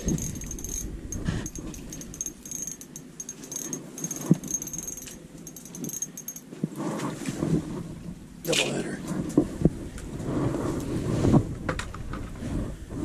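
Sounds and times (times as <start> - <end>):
fishing gear rattling and clicking: 0.0 - 6.6.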